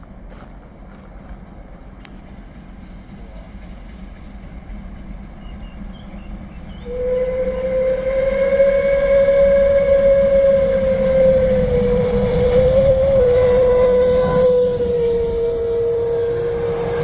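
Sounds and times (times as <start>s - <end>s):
steam locomotive whistle blast: 6.8s - 17.0s.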